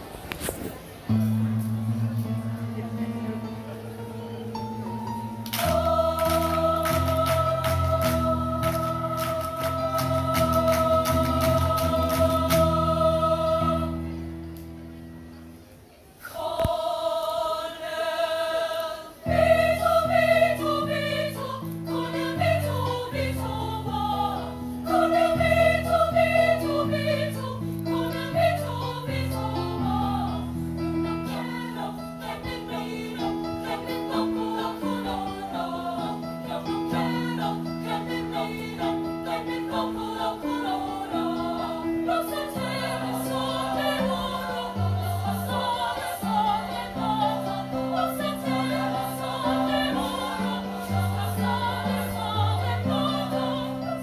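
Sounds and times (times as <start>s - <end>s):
choir singing in parts: 5.1s - 14.7s, 16.2s - 54.0s
hand-clapping: 5.5s - 12.6s.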